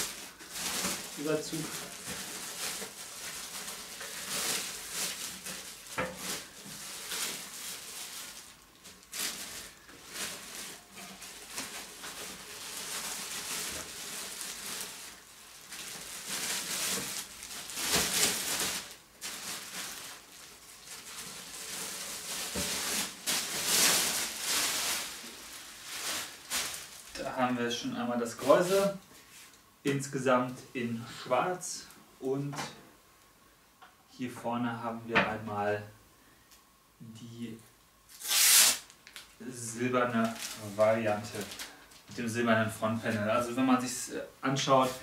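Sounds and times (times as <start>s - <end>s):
plastic bag crinkling: 0.0s - 27.6s, 38.1s - 42.4s.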